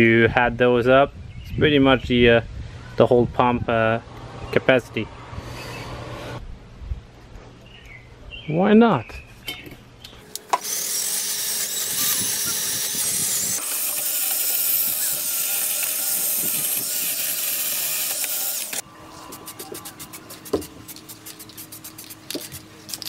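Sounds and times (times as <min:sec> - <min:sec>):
spray can mixing ball rattling: 0:19.3 - 0:23.0.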